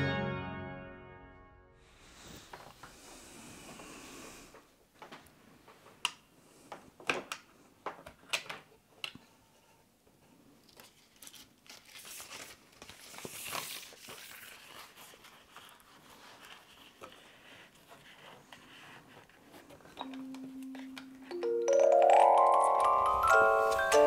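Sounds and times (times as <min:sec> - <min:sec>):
paper rustling and crinkling: 0:10.6 - 0:20.0.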